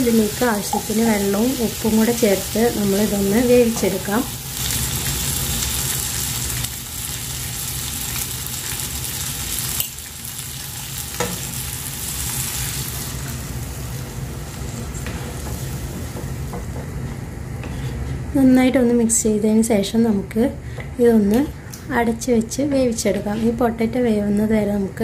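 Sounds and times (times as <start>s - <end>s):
food sizzling in oil: 0.0s - 16.8s.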